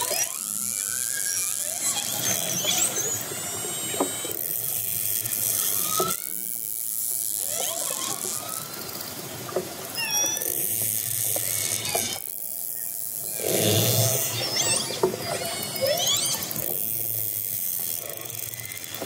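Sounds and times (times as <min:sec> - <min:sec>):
water noise hiss: 0:00.6 - 0:19.0
orcas calling underwater: 0:13.2 - 0:19.0.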